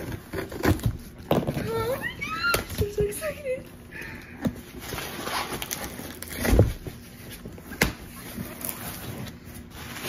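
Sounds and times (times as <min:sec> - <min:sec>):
cardboard box scraping and rustling: 0:08.1 - 0:10.0.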